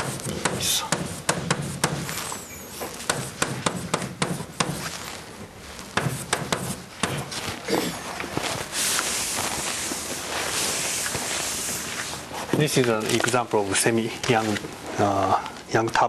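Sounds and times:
chalk tapping on blackboard: 0.0s - 2.1s, 2.9s - 5.0s, 5.9s - 7.3s.

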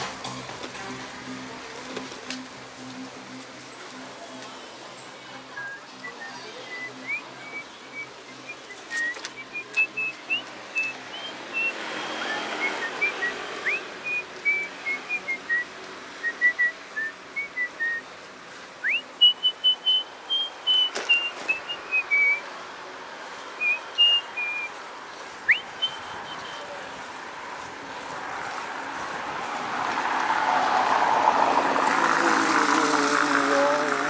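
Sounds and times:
person whistling a tune: 5.6s - 18.0s, 18.8s - 22.4s, 23.6s - 24.7s.

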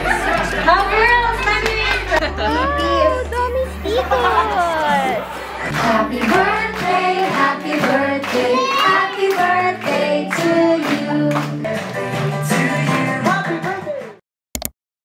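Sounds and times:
music backing track: 0.0s - 14.2s
voices singing a party song: 2.4s - 14.1s.

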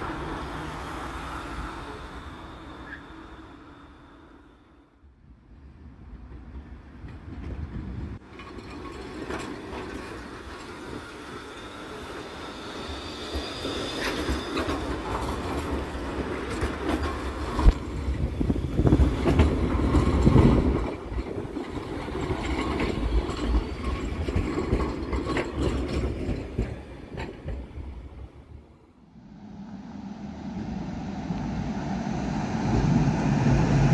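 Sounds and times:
tram wheels clattering over rails: 6.2s - 28.6s.

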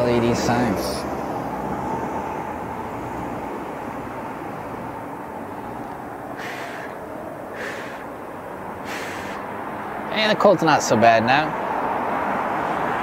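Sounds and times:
urban street background noise: 0.0s - 13.0s
short hisses: 6.4s - 8.1s, 8.8s - 9.5s.

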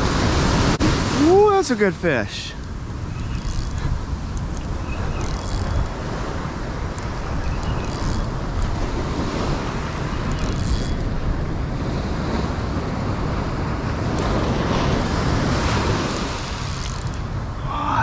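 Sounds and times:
surf washing up beach: 0.0s - 5.2s, 8.4s - 10.3s, 11.0s - 18.0s
wind buffeting microphone: 2.3s - 18.0s.

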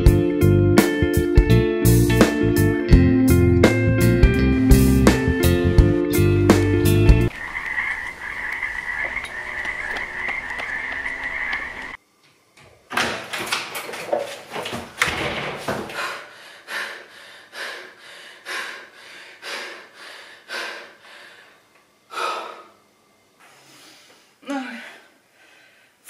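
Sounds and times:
knocks and clatter: 12.6s - 16.0s
door rattling and slamming: 12.9s - 16.0s
woman panting: 15.8s - 22.8s, 23.6s - 26.0s.

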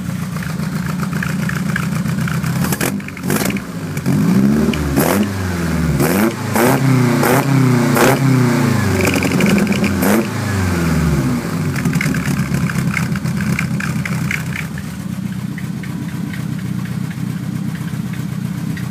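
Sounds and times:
car engine revving with exhaust cracks: 0.0s - 18.9s.

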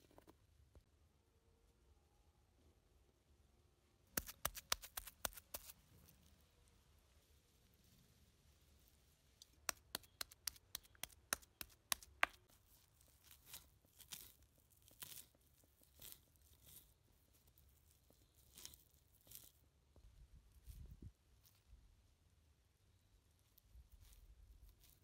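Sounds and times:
leaves rustling: 4.2s - 6.4s, 7.2s - 19.6s, 23.7s - 25.0s.

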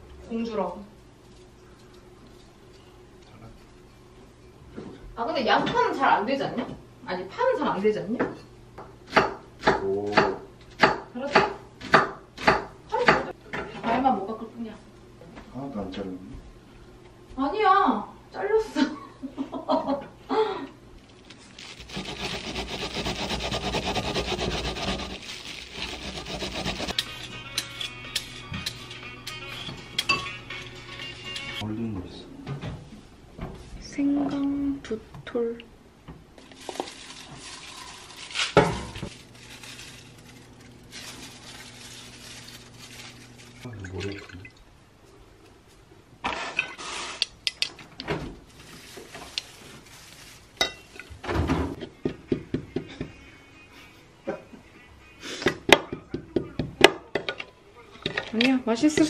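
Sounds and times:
pear grating on metal grater: 21.7s - 27.2s
kitchenware clattering: 26.7s - 30.4s.

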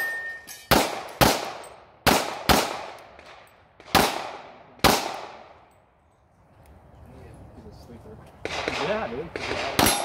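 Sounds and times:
pistol shots with echo: 0.7s - 5.7s, 8.4s - 10.0s.

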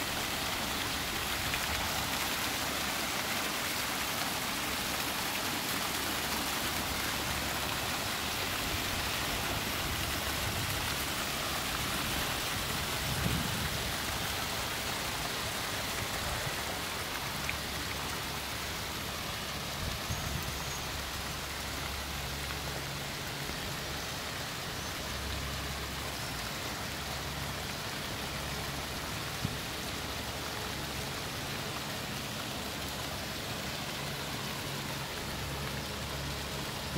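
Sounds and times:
fountain water splashing into basin: 0.0s - 36.9s.

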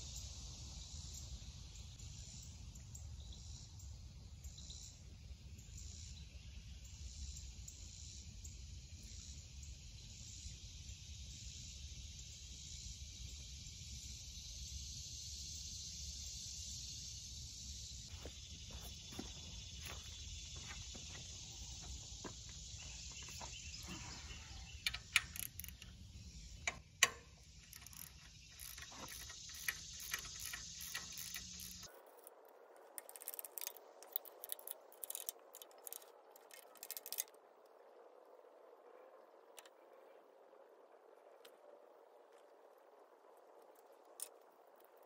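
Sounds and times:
steady background hiss: 0.0s - 45.0s
ratchet wrench clicking: 24.8s - 26.0s, 26.6s - 31.9s, 33.0s - 37.3s.

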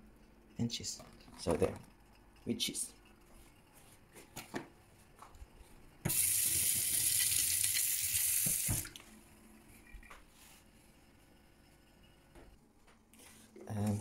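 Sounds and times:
tap running into steel sink: 8.4s - 8.9s.

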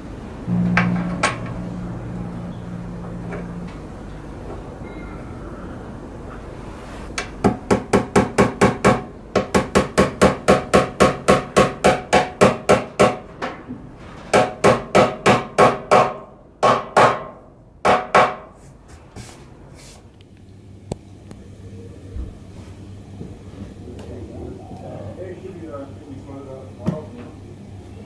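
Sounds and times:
hammer blows: 0.5s - 5.9s.

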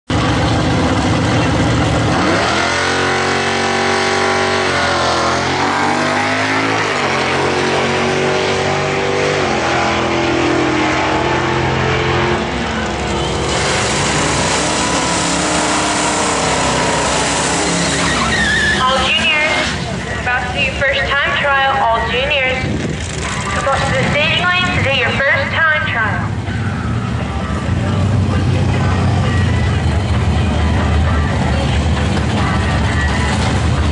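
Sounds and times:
engine revving: 0.1s - 21.3s
car engines idling loudly: 0.1s - 33.9s.

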